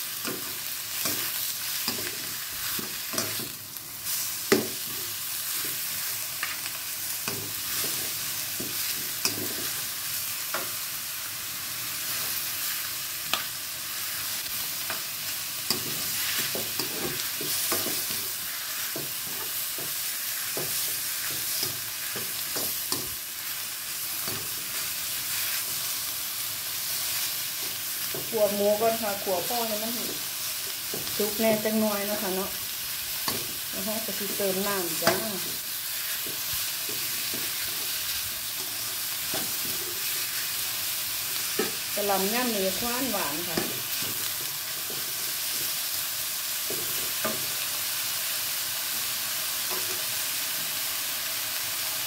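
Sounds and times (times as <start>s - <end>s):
meat sizzling in a wok: 0.0s - 52.0s.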